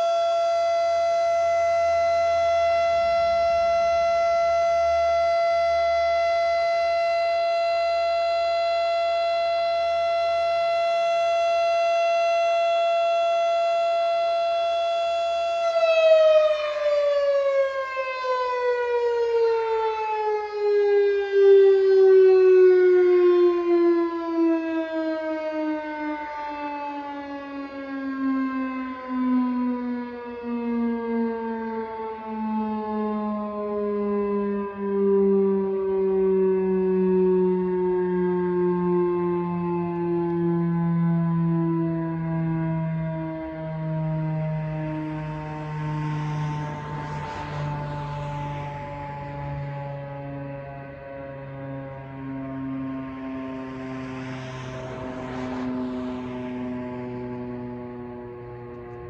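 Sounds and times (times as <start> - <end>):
warning siren winding down: 0.0 - 59.0.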